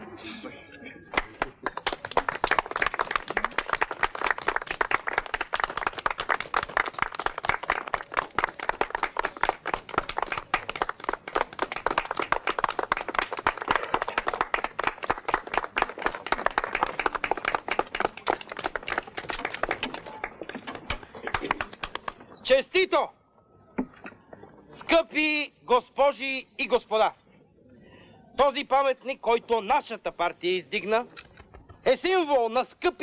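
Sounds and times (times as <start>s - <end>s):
group of people clapping: 1.0s - 22.4s.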